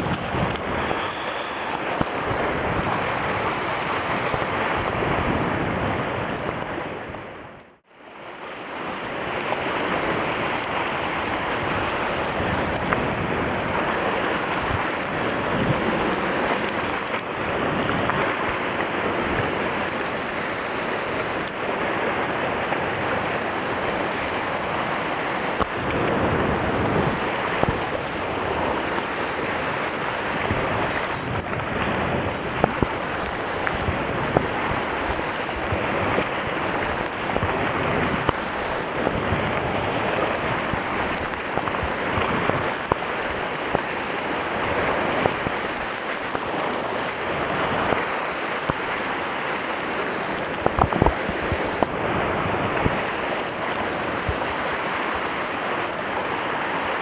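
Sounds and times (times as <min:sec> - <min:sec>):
wind buffeting the microphone: 0:00.0 - 0:07.8, 0:08.8 - 0:57.0
sea surf washing over rocks: 0:00.0 - 0:57.0.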